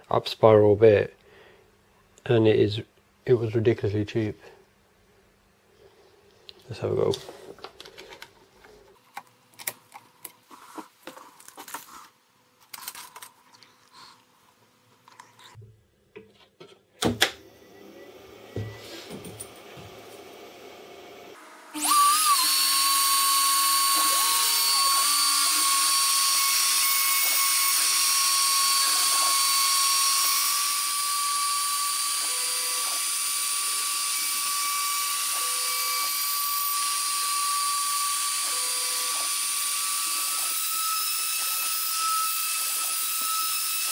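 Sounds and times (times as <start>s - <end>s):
router spindle whining: 20.4s - 43.9s.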